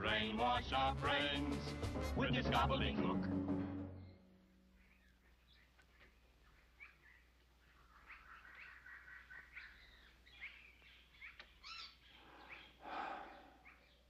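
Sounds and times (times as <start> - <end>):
birds twittering: 4.0 - 14.0.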